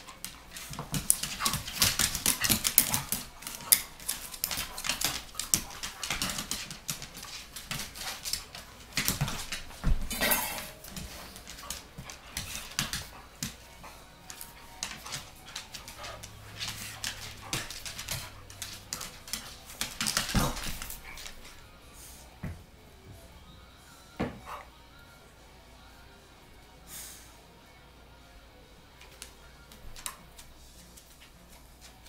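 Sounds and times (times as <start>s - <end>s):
dogs play-fighting: 0.0s - 22.3s, 24.2s - 25.1s.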